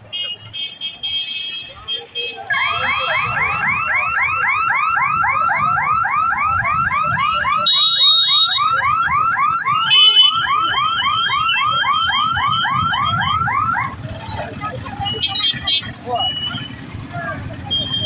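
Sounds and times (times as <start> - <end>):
level crossing warning siren: 2.4 - 15.6
motorcycle engines running: 8.2 - 18.0.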